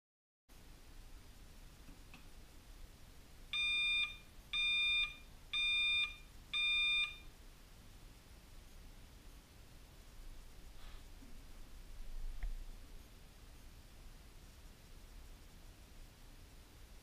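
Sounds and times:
electronic timer beeps: 0:03.6 - 0:07.3.

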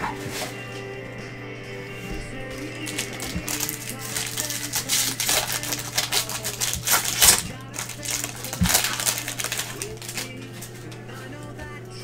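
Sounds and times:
foil wrapper crinkling and tearing: 0:02.5 - 0:11.5.

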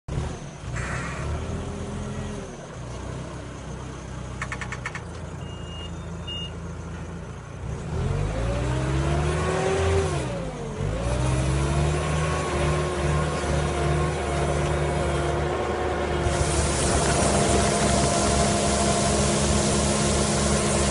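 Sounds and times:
diesel engine running: 0:00.1 - 0:20.9
short high beeps: 0:05.4 - 0:06.6.

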